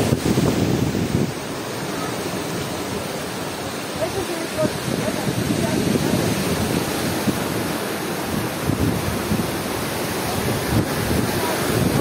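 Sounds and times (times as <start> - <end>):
surf rushing: 0.0 - 12.0
wind buffeting microphone: 0.0 - 12.0.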